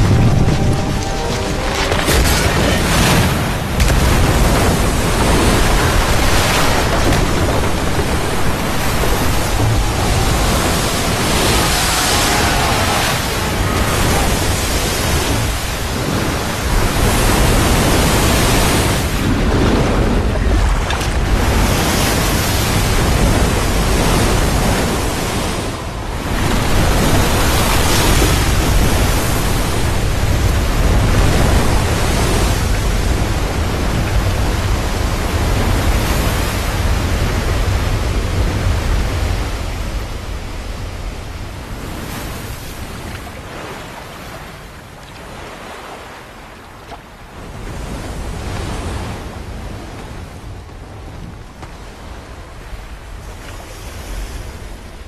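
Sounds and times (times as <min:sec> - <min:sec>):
floodwater rushing down rocks: 0:00.0 - 0:40.9.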